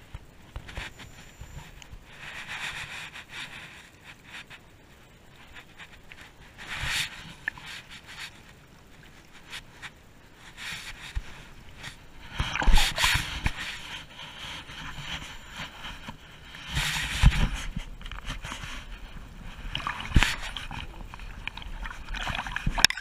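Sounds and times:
wind noise on microphone: 0.0 - 23.0
seawater splashing: 6.5 - 15.9, 18.3 - 23.0.

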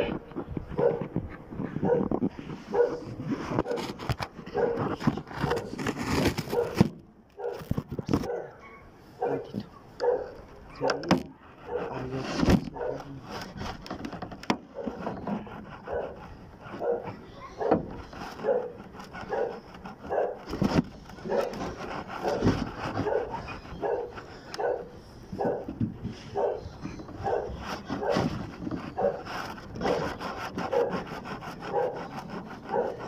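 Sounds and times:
dog barking: 0.8 - 1.0, 1.8 - 2.1, 2.7 - 3.0, 4.5 - 4.8, 6.5 - 6.8, 7.4 - 7.6, 8.2 - 12.1, 12.7 - 13.1, 14.7 - 15.0, 15.8 - 20.5, 21.2 - 25.7, 26.3 - 28.3, 28.9 - 29.2, 29.8 - 30.1, 30.7 - 31.1, 31.7 - 32.1, 32.7 - 33.0.

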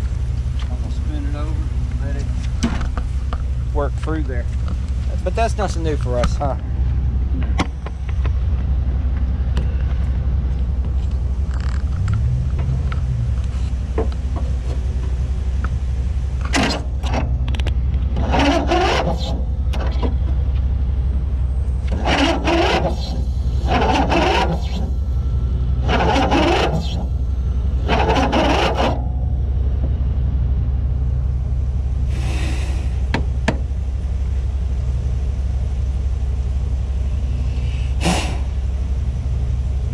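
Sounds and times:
small gas engine running: 16.5 - 20.4, 21.8 - 29.2, 32.0 - 33.7, 37.1 - 38.8.

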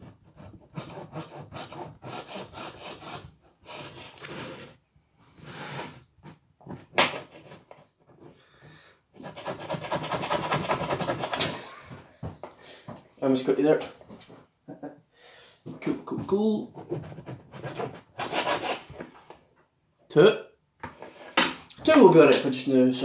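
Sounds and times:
knife sawing through bread: 0.0 - 4.8, 9.2 - 11.5, 16.8 - 19.0.

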